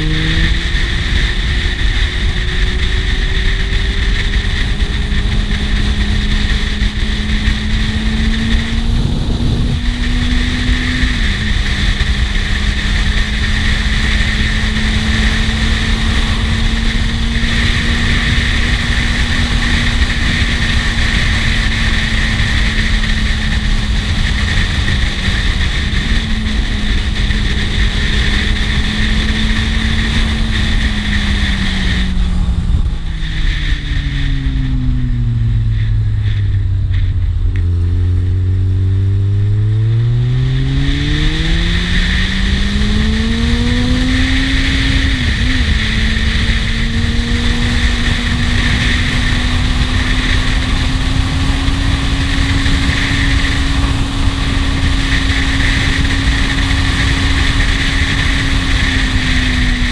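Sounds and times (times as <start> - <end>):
motorcycle engine: 0.0 - 59.9
wind rush: 0.0 - 59.9.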